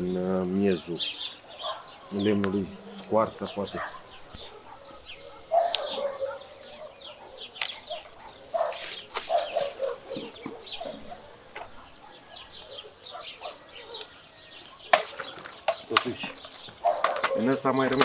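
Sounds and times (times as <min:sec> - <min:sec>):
branches rustling: 0:00.0 - 0:18.0
small birds chirping: 0:00.0 - 0:18.0
sharp clicks: 0:07.6 - 0:08.1.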